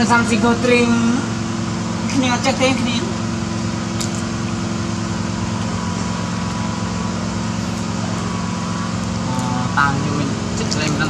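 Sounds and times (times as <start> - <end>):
motor humming: 0.0 - 11.0.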